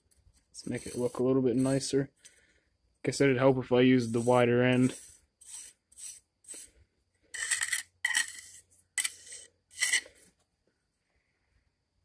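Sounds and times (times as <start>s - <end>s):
metal tool scraping mortar: 0.6s - 1.9s, 4.0s - 6.7s, 7.3s - 10.2s.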